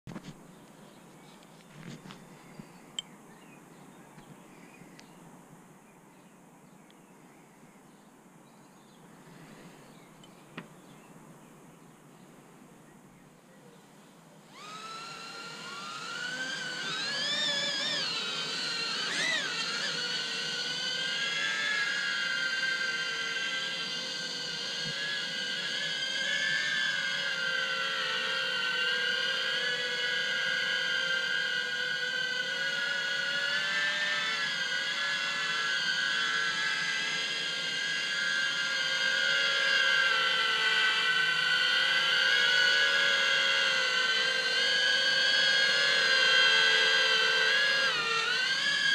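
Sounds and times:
drone propellers whining: 0:14.4 - 0:48.9.

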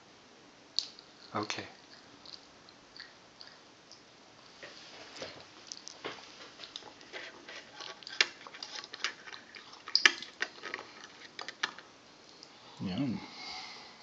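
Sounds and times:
hands handling crackers and plastic: 0:05.0 - 0:11.9.

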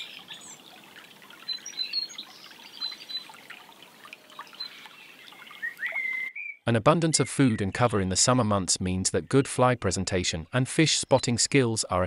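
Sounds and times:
small water splashes: 0:00.0 - 0:06.3
stream trickling and babbling: 0:00.0 - 0:06.5.

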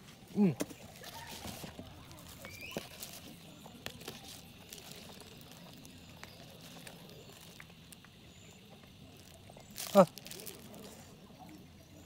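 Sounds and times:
quiet outdoor background: 0:00.0 - 0:12.0.

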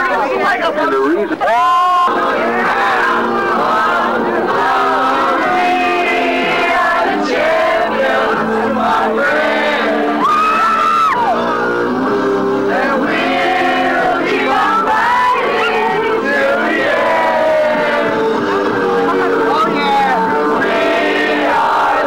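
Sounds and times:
crowd singing along: 0:00.0 - 0:22.0
song playing: 0:00.0 - 0:22.0
people shouting: 0:01.4 - 0:11.5, 0:12.8 - 0:18.2.

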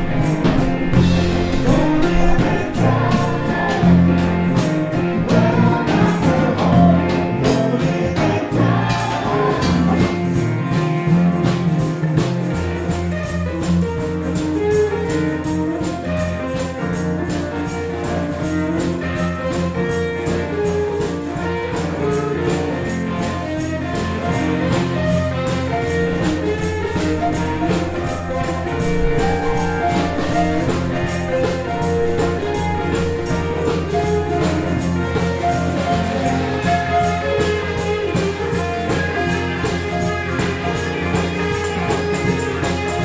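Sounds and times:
steady beat: 0:00.0 - 0:07.0, 0:25.8 - 0:36.7
band playing music: 0:00.0 - 0:43.0
electric guitar: 0:00.0 - 0:43.0.

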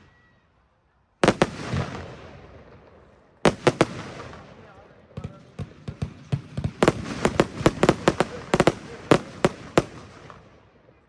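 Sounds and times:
fireworks bangs and cracks: 0:01.2 - 0:10.7.

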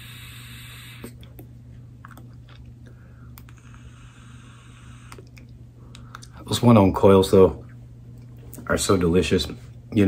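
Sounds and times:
mouth clicks: 0:00.7 - 0:06.4.

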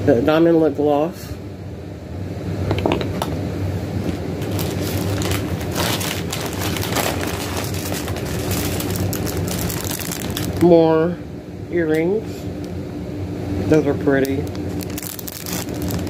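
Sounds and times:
steady low hum: 0:00.0 - 0:16.0
plastic packaging crinkling: 0:04.1 - 0:10.7, 0:14.1 - 0:16.0.

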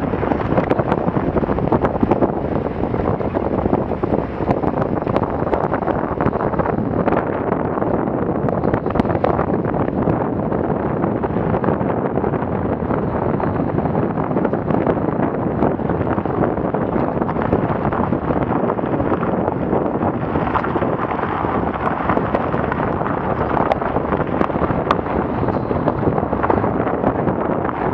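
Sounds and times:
car rumbling over dirt track: 0:00.0 - 0:27.9
wind buffeting camera: 0:00.0 - 0:27.9.

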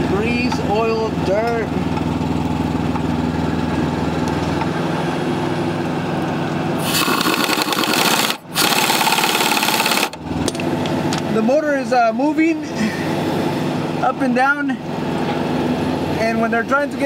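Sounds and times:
low mechanical hum: 0:00.0 - 0:17.0
impact wrench hammering: 0:06.8 - 0:10.6.

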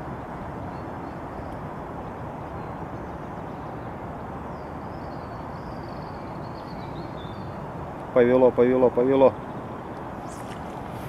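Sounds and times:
wind blowing across microphone: 0:00.0 - 0:11.0.

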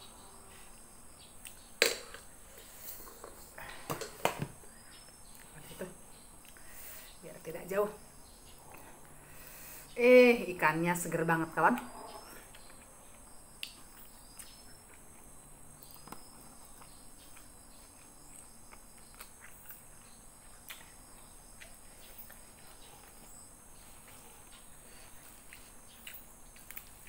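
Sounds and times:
soft chewing: 0:11.8 - 0:27.0.

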